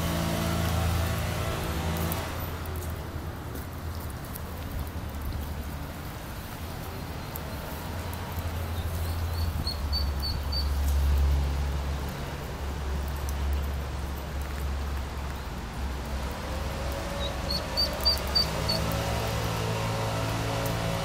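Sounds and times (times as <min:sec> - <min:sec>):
water flowing in a channel: 0:00.0 - 0:21.0
ducklings peeping: 0:08.8 - 0:10.8, 0:17.0 - 0:19.0.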